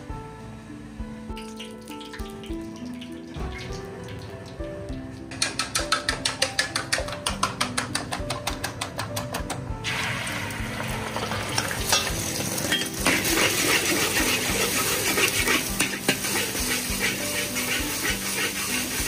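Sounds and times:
eggs sizzling in hot oil: 0:01.3 - 0:07.2, 0:09.8 - 0:19.0
metal spatula scraping wok: 0:11.1 - 0:19.0.

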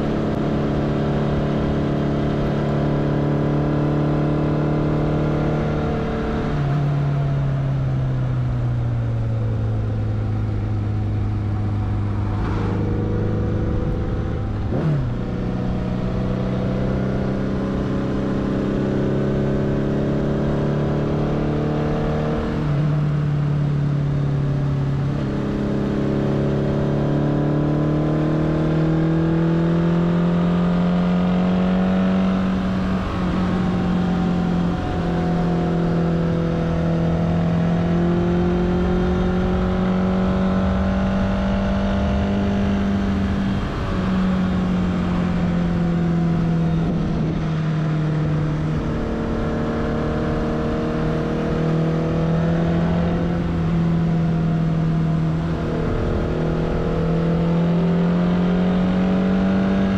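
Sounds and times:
motorcycle engine changing gears: 0:24.1 - 0:59.9.

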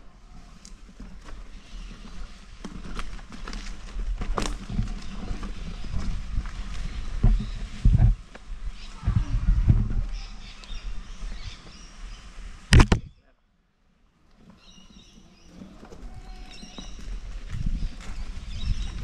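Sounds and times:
wheel bumping on rocky trail: 0:00.4 - 0:10.6, 0:14.3 - 0:19.0
wind on microphone: 0:04.5 - 0:13.2, 0:16.0 - 0:19.0
birds chirping: 0:08.7 - 0:13.4, 0:14.4 - 0:19.0.

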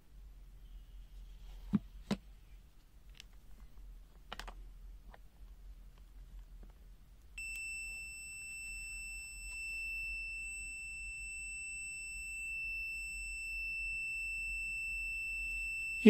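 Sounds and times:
multimeter continuity beep: 0:07.4 - 0:16.0.

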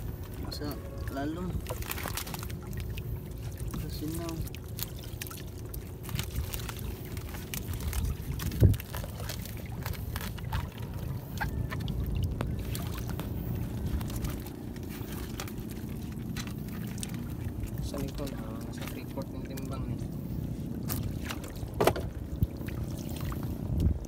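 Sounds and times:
water sloshing and dripping: 0:00.0 - 0:24.0.

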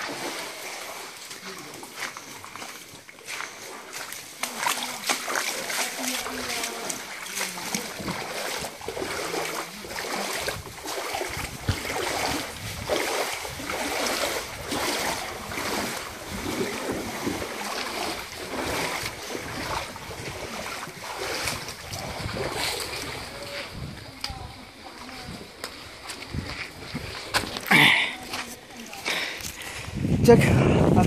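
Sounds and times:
flowing stream water: 0:00.0 - 0:31.0
footsteps on stones and dry leaves: 0:01.1 - 0:08.7, 0:23.8 - 0:30.1
wind buffeting microphone: 0:07.9 - 0:28.4, 0:29.4 - 0:31.0.

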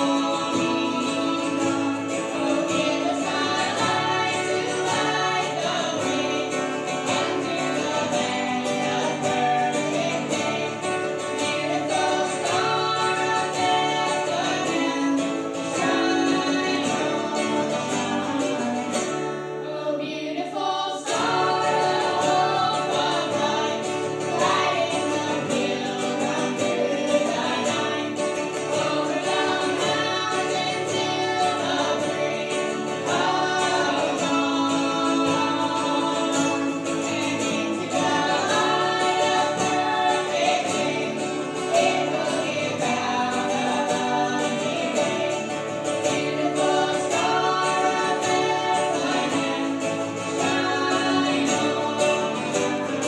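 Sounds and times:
acoustic guitar: 0:00.0 - 0:53.0
strummed mandolin: 0:00.0 - 0:53.0
voices singing gospel song: 0:00.0 - 0:53.0.

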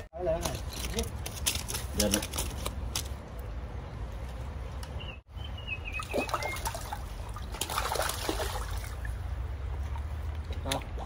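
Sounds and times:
river water running: 0:05.4 - 0:11.0
fish splashing: 0:05.9 - 0:11.0.

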